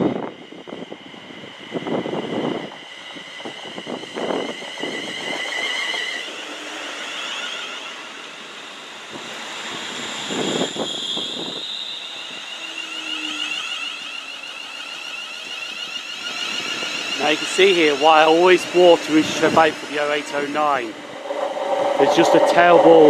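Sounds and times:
electric train whining: 0.0 - 23.0
train wheel clatter: 14.8 - 23.0.

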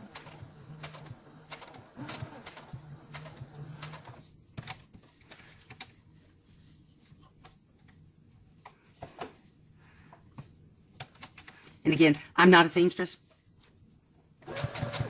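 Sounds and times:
sewing machine hum: 0.0 - 4.2, 14.4 - 15.0.

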